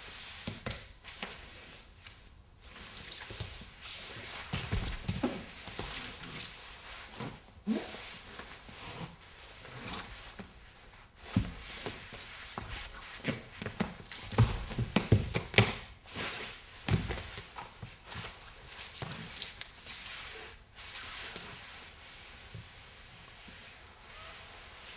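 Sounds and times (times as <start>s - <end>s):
body thudding on floor: 4.5s - 5.5s.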